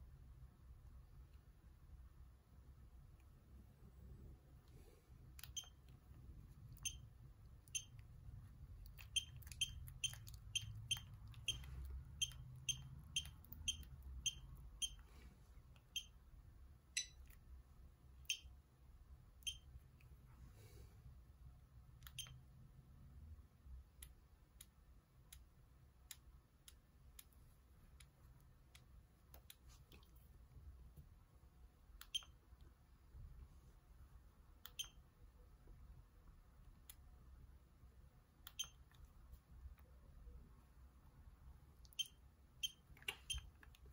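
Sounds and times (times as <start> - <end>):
phone keypad beeps: 5.4 - 5.8, 6.8 - 7.1, 7.7 - 8.0, 9.0 - 15.0, 17.0 - 17.2, 19.4 - 19.7, 22.1 - 22.4, 38.5 - 38.8, 41.9 - 43.5.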